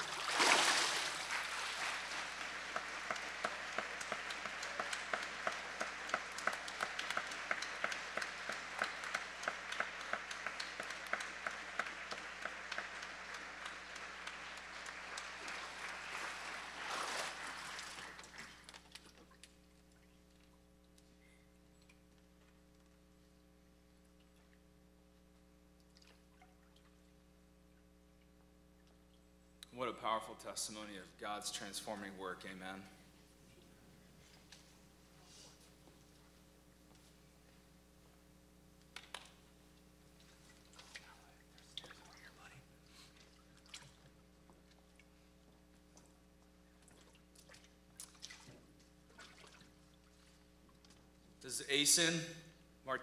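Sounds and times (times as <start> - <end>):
water sloshing and dripping: 0.0 - 2.3, 15.6 - 21.1, 25.8 - 27.2, 40.1 - 51.4
faint steady hum: 0.0 - 53.0.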